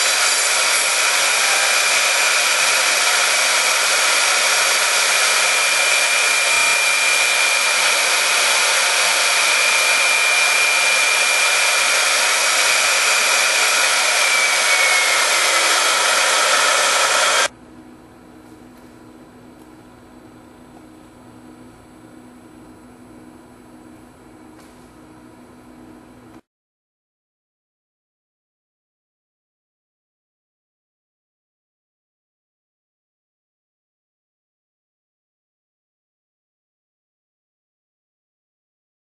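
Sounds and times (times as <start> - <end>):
end mill cutting foam hiss: 0.0 - 17.5
router spindle whine: 0.0 - 17.5.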